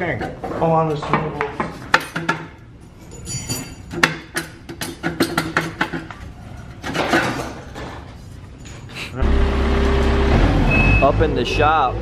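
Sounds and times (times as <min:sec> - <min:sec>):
metal clinks and rattles: 0:02.9 - 0:04.0.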